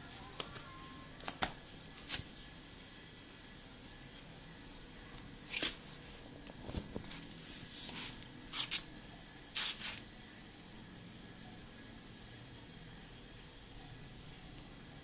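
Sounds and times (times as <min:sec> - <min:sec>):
rustling scrapes: 0:07.1 - 0:08.8.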